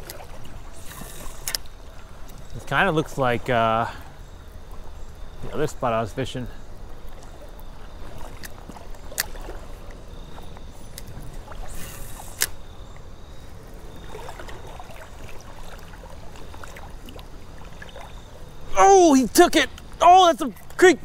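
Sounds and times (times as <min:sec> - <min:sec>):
creek water splashing: 0:00.0 - 0:21.0
brief hiss: 0:11.7 - 0:12.6.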